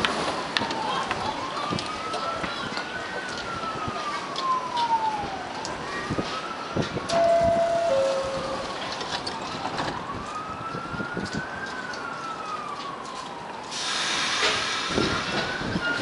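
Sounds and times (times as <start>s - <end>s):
siren wailing: 0.6s - 13.8s
subway train pulling out: 7.1s - 8.9s, 13.7s - 16.0s.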